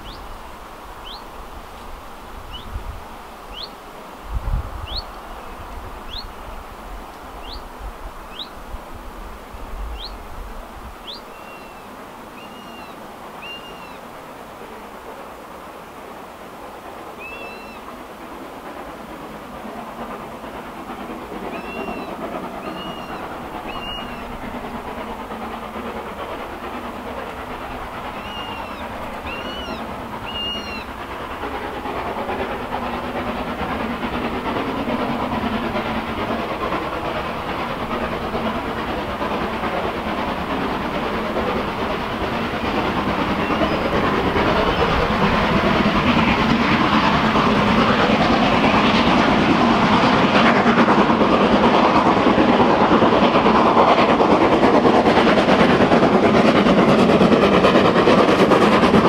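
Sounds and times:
steam locomotive exhaust beat: 0.0 - 59.0.

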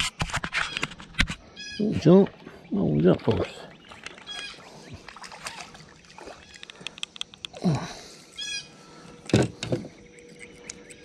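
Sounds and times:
bird calling: 0.6 - 11.0
fish splashing at water surface: 4.0 - 6.9.

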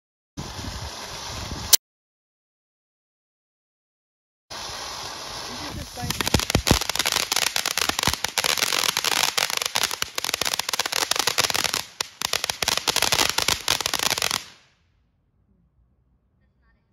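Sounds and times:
firework crackling: 0.4 - 1.8, 4.5 - 14.7
hiss of spark spray: 0.4 - 1.8, 4.5 - 14.6.

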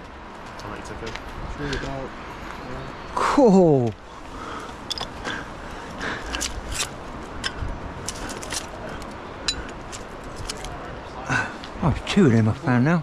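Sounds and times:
scrap metal clinking and scraping: 4.8 - 5.4.

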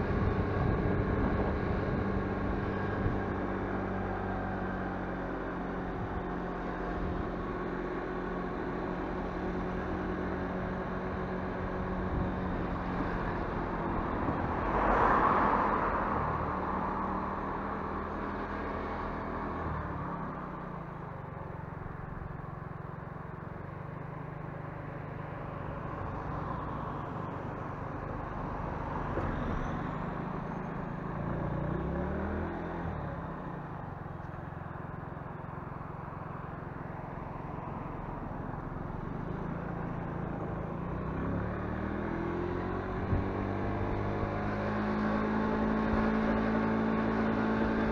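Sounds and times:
wind and road noise: 0.0 - 47.9
motorcycle engine running: 19.8 - 47.9.

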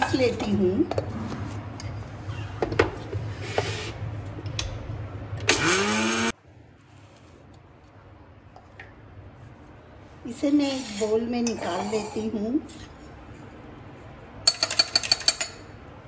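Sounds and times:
mixer grinder motor running: 5.5 - 6.3.

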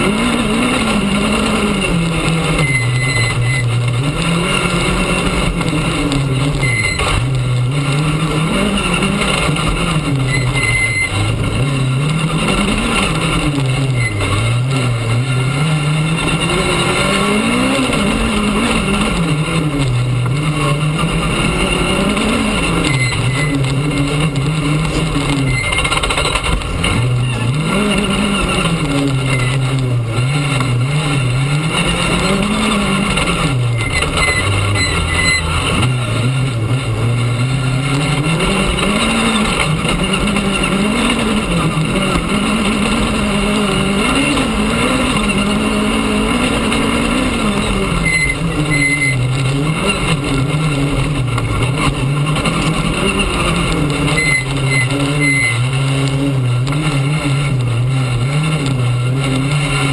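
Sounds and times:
rally car engine revving: 0.0 - 59.9
tyres on gravel: 0.0 - 59.9.

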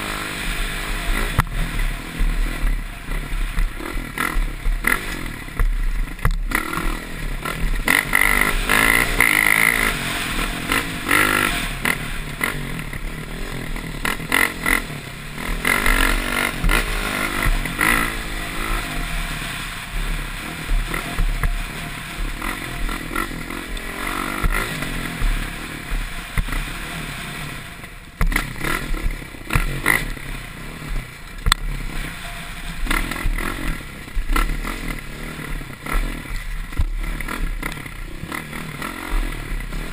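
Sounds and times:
dirt bike engine revving: 0.0 - 39.9
bike knocking over bumps: 5.5 - 6.5, 28.2 - 30.0.

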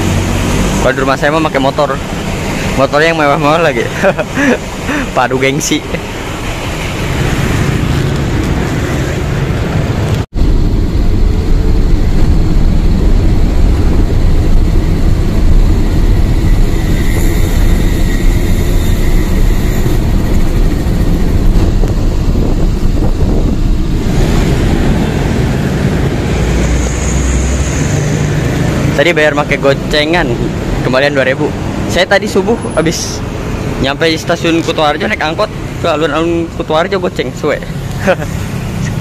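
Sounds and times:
minibus engine and road noise: 0.0 - 39.0.

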